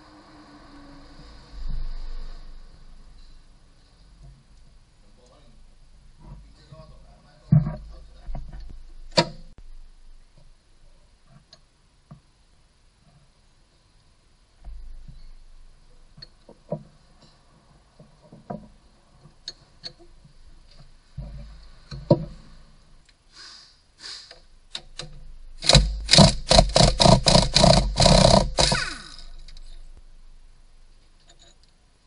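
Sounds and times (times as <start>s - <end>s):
brief falling whine: 0.0s - 3.5s
tool clicks and knocks on engine: 24.7s - 28.9s
rapid rattling knocks: 24.9s - 28.9s.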